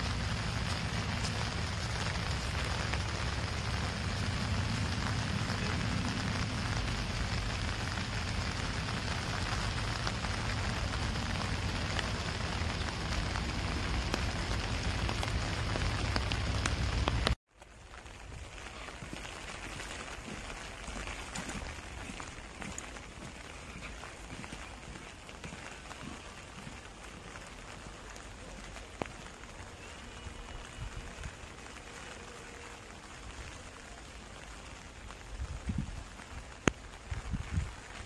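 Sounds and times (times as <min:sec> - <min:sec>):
heavy low rumble: 0:00.0 - 0:17.4
rain on grass and leaves: 0:00.0 - 0:38.0.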